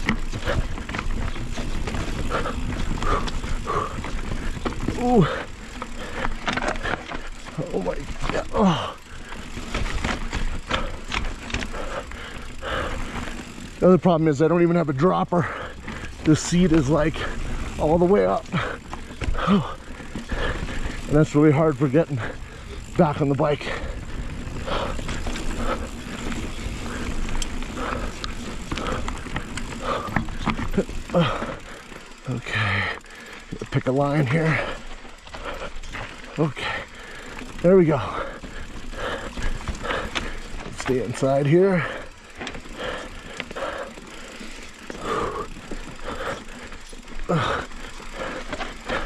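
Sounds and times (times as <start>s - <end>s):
bike clicks and rattles: 0.0s - 49.0s
heavy labored breathing: 0.0s - 49.0s
mountain bike rolling on rocks: 0.0s - 49.0s
person grunting: 5.0s - 5.5s, 8.4s - 9.1s.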